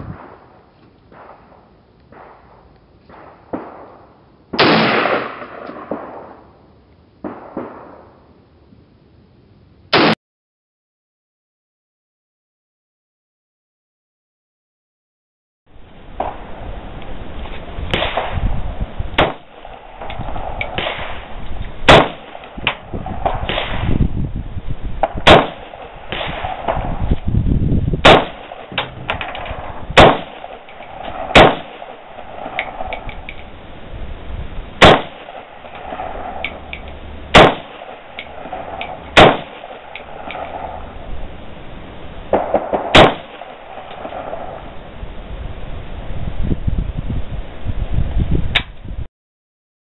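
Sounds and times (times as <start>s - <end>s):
rifle shots: 0.1s - 6.4s, 7.2s - 8.2s, 9.9s - 10.2s, 17.9s - 18.5s, 19.2s - 24.0s, 25.0s - 27.1s, 28.0s - 33.2s, 34.8s - 41.0s, 42.3s - 44.7s.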